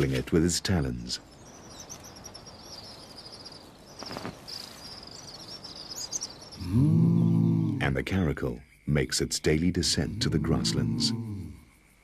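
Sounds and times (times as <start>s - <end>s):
soft hiss: 0.0s - 6.6s.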